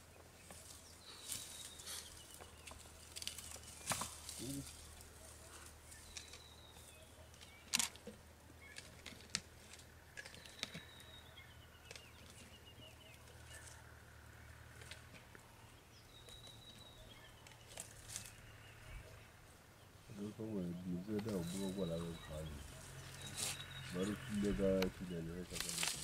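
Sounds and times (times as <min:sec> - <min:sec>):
twigs and branches snapping: 0:00.5 - 0:06.5, 0:07.4 - 0:11.2, 0:17.4 - 0:18.4, 0:24.8 - 0:26.0.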